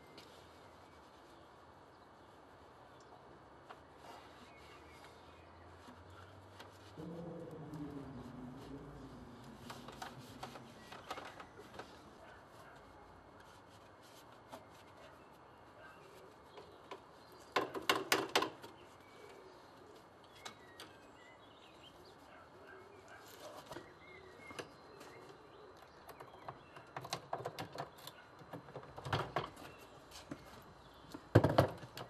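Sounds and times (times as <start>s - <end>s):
faint birdsong: 0.0s - 32.0s
clicks and rattles of handled gear: 9.6s - 12.0s.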